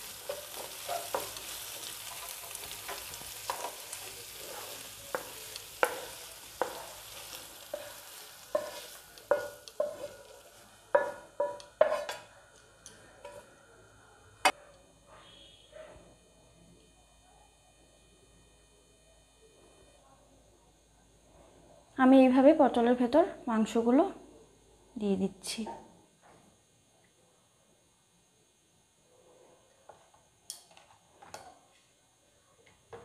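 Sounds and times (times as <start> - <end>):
spatula scraping frying pan: 0.0 - 12.3
faint sizzle from pan: 0.0 - 25.8, 27.8 - 33.0.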